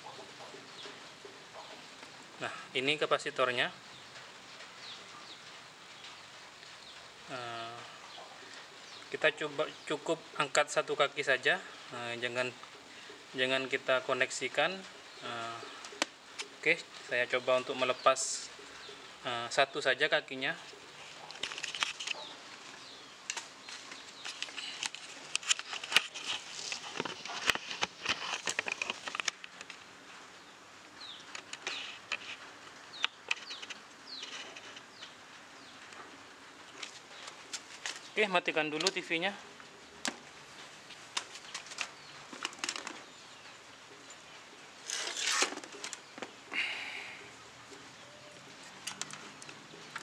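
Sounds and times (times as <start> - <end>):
rustling scrape: 20.9 - 29.4, 44.8 - 46.0
faint bird chirps: 46.1 - 48.5.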